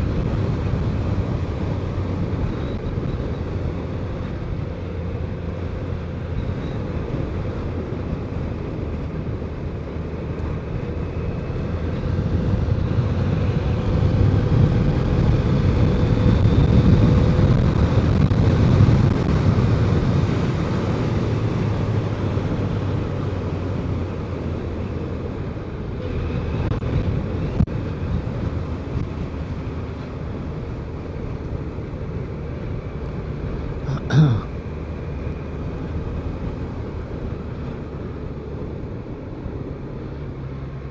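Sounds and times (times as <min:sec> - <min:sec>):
wind noise: 0:10.8 - 0:23.0.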